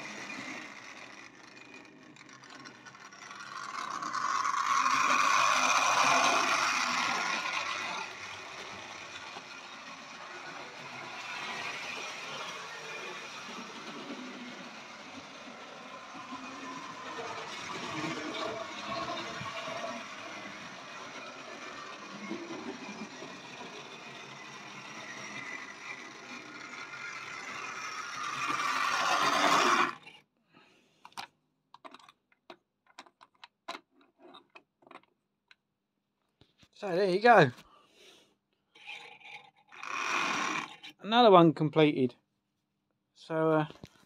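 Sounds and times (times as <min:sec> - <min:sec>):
model train motor whirring: 0:00.0 - 0:30.2, 0:38.8 - 0:41.0.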